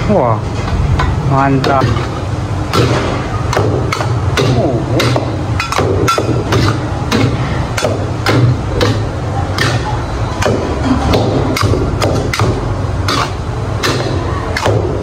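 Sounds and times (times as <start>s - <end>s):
gas burner roar: 0.0s - 15.0s
spatulas clanking on steel wok: 0.6s - 15.0s.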